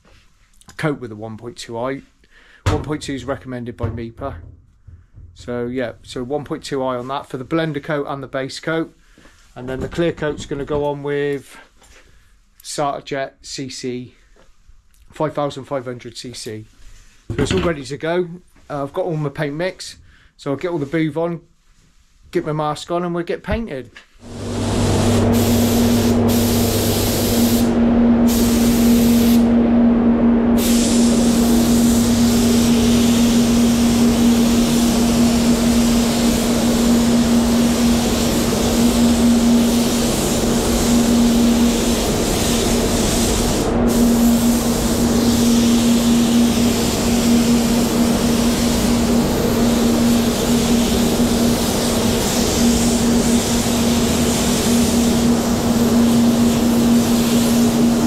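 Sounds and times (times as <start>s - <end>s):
spray gun hissing: 24.2s - 29.6s, 30.6s - 58.0s
spray booth fans humming: 24.2s - 58.0s.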